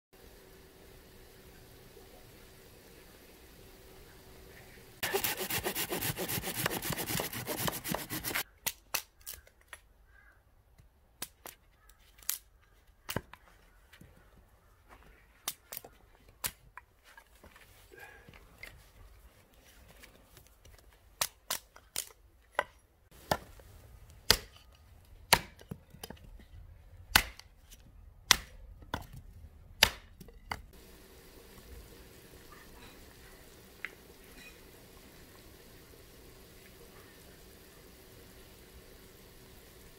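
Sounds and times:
hatchet chopping firewood: 0:05.0 - 0:09.0, 0:21.2 - 0:23.6, 0:24.2 - 0:24.7, 0:25.3 - 0:26.2, 0:27.1 - 0:27.5, 0:28.3 - 0:29.2, 0:29.8 - 0:30.6.

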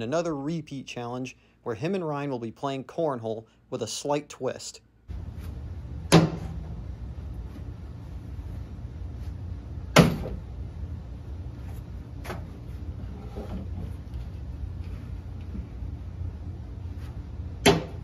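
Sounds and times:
steady low hum: 0:04.9 - 0:18.0.

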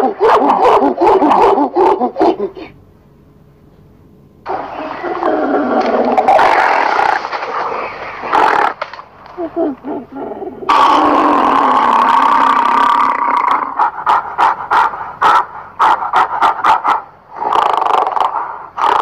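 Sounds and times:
gorilla long call: 0:00.0 - 0:02.8, 0:08.3 - 0:16.2.

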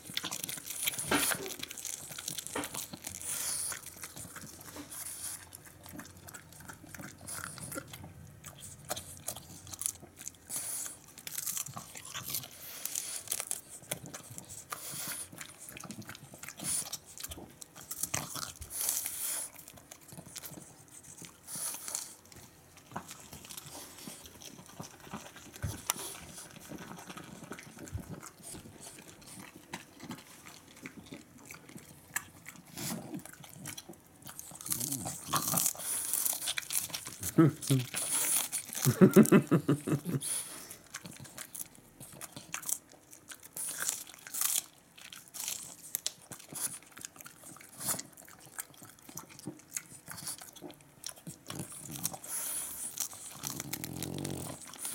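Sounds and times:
dog chewing crisp cabbage: 0:00.0 - 0:54.9.

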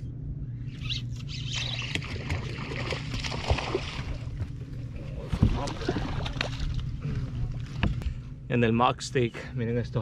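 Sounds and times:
steady low hum: 0:00.0 - 0:10.0
fish thrashing in water: 0:01.5 - 0:04.5, 0:05.2 - 0:07.4.

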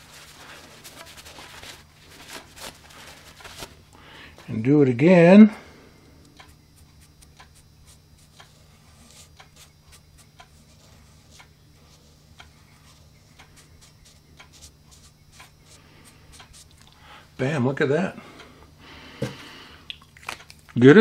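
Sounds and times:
low steady hum: 0:00.0 - 0:20.9.

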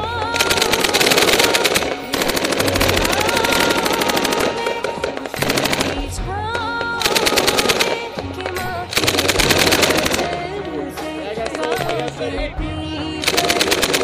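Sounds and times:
rapid automatic gunfire: 0:00.2 - 0:06.2, 0:07.0 - 0:10.5, 0:13.2 - 0:14.0.

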